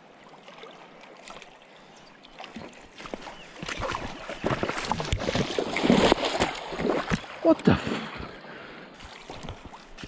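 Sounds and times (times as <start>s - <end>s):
shallow river water running: 0.0s - 10.0s
fish splashing: 3.1s - 7.5s.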